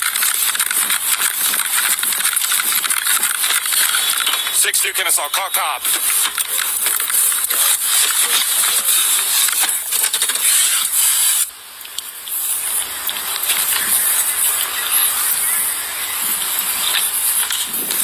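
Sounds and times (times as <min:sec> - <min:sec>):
steady hiss: 0:07.1 - 0:18.0.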